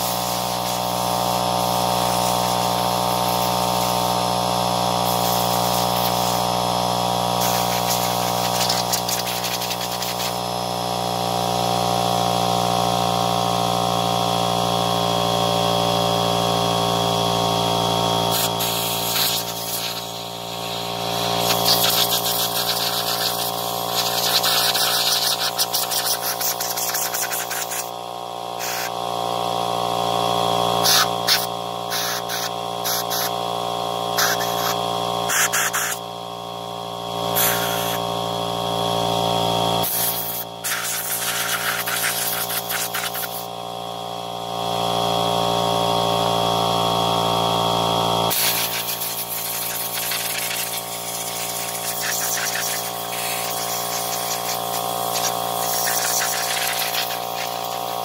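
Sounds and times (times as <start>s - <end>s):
compressed air blow gun hissing: 0.0s - 4.2s, 5.0s - 6.5s, 7.3s - 10.4s, 18.2s - 27.9s, 28.6s - 28.9s, 30.8s - 33.3s, 34.2s - 36.0s, 37.3s - 38.0s, 39.8s - 43.5s, 48.3s - 58.0s
steady motor hum: 0.0s - 58.0s.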